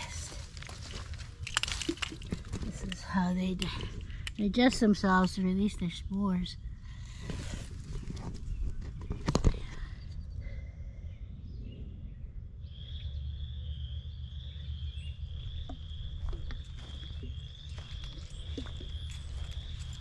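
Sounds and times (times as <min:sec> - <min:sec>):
low rumble: 0:06.5 - 0:20.0
frogs trilling chorus: 0:12.6 - 0:20.0.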